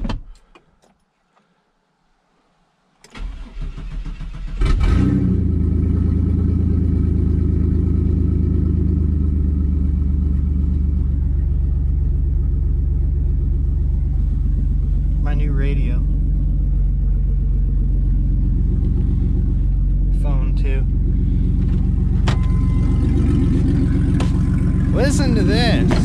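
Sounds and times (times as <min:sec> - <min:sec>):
loud engine idling: 0:06.1 - 0:26.0.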